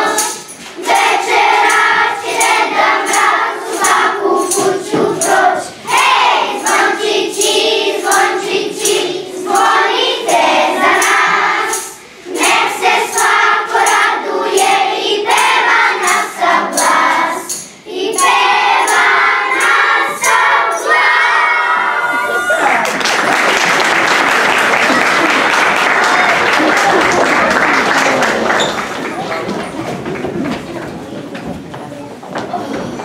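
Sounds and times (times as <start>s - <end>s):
choir singing: 0.0s - 22.6s.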